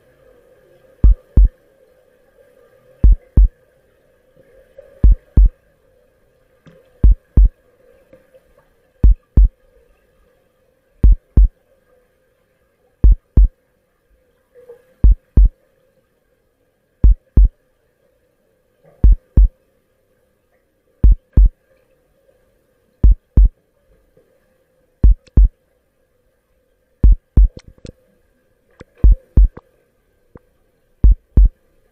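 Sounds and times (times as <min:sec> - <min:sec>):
faint steady hum: 0:00.0 - 0:31.9
heartbeat double thump: 0:01.0 - 0:01.5, 0:03.0 - 0:03.5, 0:05.0 - 0:05.5, 0:07.0 - 0:07.5, 0:09.0 - 0:09.5, 0:11.0 - 0:11.5, 0:13.0 - 0:13.5, 0:15.0 - 0:15.5, 0:17.0 - 0:17.5, 0:19.0 - 0:19.5, 0:21.0 - 0:21.5, 0:23.0 - 0:23.5, 0:25.0 - 0:25.5, 0:27.0 - 0:27.9, 0:29.0 - 0:29.6, 0:31.0 - 0:31.5.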